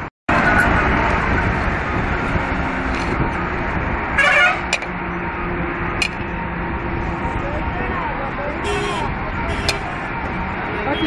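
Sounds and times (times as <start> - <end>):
road traffic passing: 0.0 - 11.0
vehicle horn honking: 4.2 - 4.6, 8.6 - 9.8.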